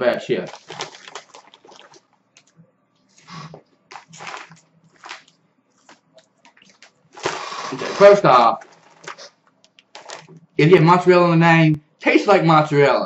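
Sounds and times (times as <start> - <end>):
chip bag crinkling: 0.1 - 2.6, 3.2 - 10.4
chewing crunchy chips: 0.4 - 2.6, 3.2 - 10.4.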